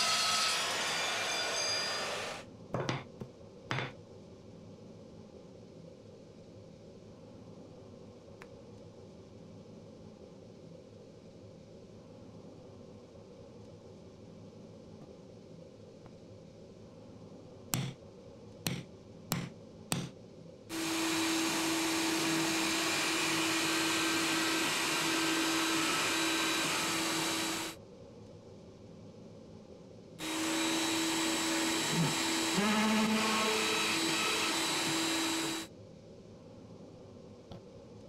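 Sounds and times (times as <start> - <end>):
electric drill running: 0.0 - 2.4, 20.7 - 27.8, 30.2 - 35.7
sharp knocks: 17.8 - 18.0, 18.7 - 20.2.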